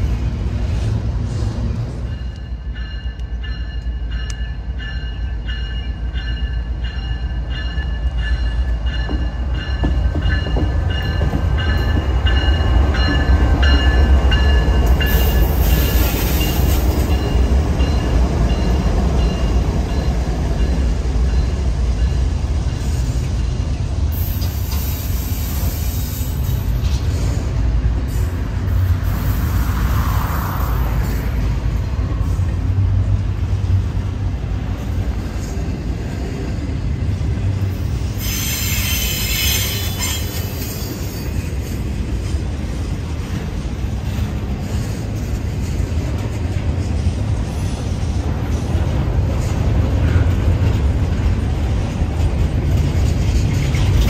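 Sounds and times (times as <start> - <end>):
diesel locomotives rumbling: 0.0 - 54.0
train wheels rolling on rails: 0.0 - 54.0
train bell ringing: 2.0 - 23.2.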